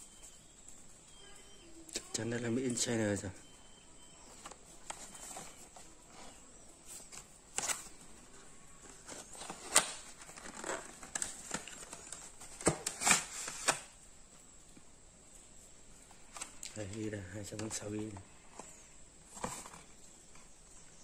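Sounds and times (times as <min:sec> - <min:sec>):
packaging rustling and crinkling: 0:00.0 - 0:14.6, 0:15.9 - 0:21.0
sharp clicks and snaps: 0:01.8 - 0:02.9.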